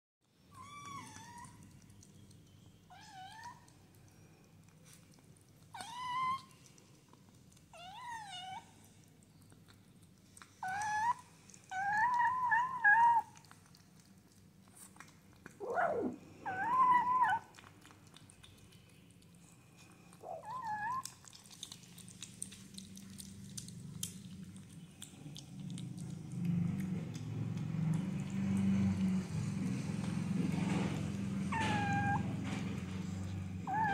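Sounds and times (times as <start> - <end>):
kittens meowing: 15.6 - 17.5, 31.5 - 32.4, 33.6 - 33.9.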